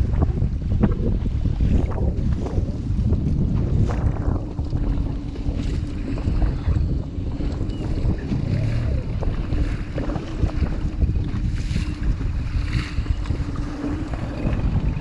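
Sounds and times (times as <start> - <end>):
outboard motor running: 0.0 - 15.0
water splashing against hull: 0.0 - 15.0
wind noise on microphone: 0.0 - 15.0.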